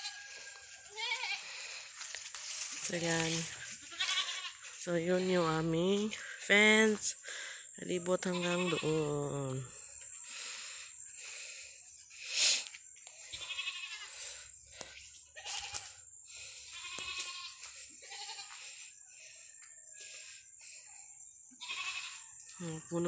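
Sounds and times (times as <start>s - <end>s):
goats bleating: 0.9s - 1.6s, 3.6s - 5.4s, 8.2s - 9.2s, 13.3s - 14.1s, 16.7s - 18.6s, 21.6s - 22.3s.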